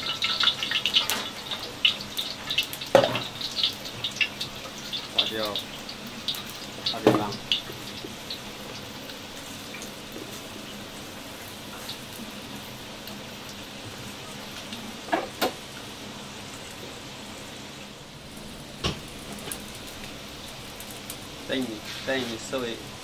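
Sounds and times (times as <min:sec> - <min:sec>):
food frying hiss: 0:00.0 - 0:23.0.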